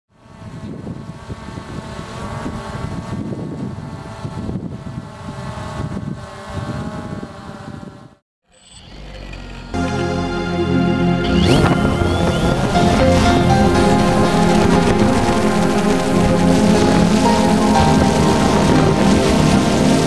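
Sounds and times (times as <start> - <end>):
wind buffeting microphone: 0.4 - 8.1
drone propellers whining: 8.6 - 20.0.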